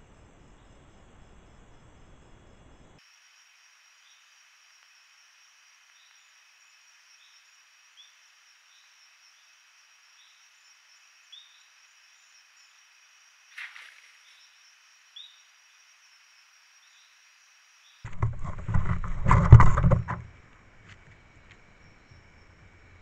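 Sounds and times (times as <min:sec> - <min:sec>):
high trilling of insects: 0:02.2 - 0:18.1
rustling and bumping on microphone: 0:18.1 - 0:21.0.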